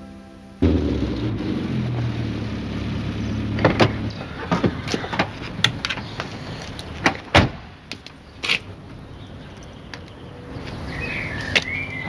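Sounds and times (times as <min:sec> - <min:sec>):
car door shutting: 0:00.6 - 0:08.0.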